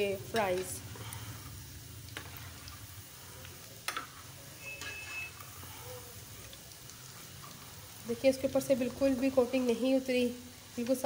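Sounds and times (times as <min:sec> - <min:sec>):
fries sizzling in hot oil: 0:00.0 - 0:11.0.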